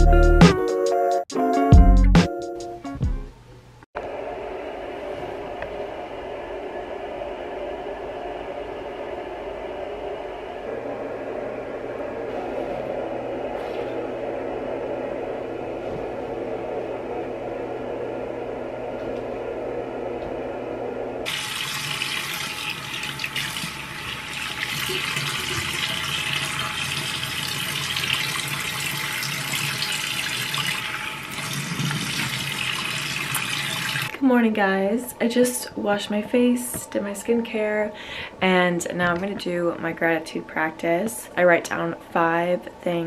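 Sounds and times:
droning hum of held tones: 0:04.0 - 0:31.9, 0:34.0 - 0:43.0
faucet running into sink: 0:21.3 - 0:34.1.

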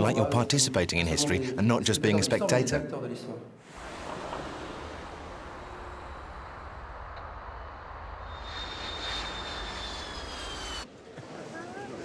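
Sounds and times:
jet engines rumbling: 0:03.6 - 0:11.0
high thin engine whine: 0:03.7 - 0:10.9.

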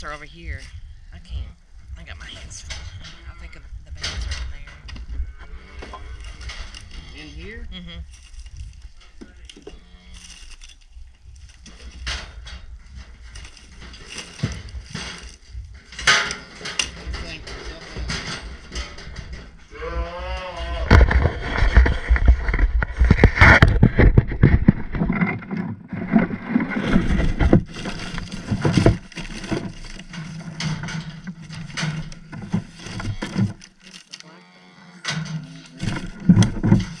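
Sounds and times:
cattle bawling: 0:19.7 - 0:21.0
tools clattering in plastic tray: 0:35.1 - 0:37.0.

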